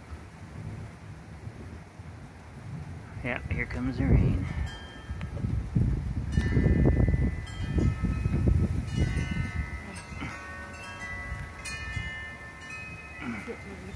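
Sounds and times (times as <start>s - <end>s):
wind buffeting microphone: 0.0s - 13.9s
wind chimes ringing: 3.6s - 13.9s.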